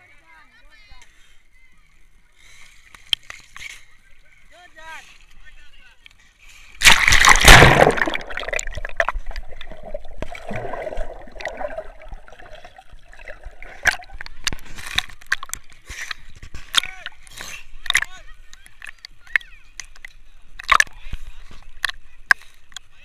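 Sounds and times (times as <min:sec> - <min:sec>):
loud water splash: 0:06.8 - 0:14.3
muffled underwater sloshing: 0:06.8 - 0:22.7
underwater clicks: 0:06.8 - 0:22.9.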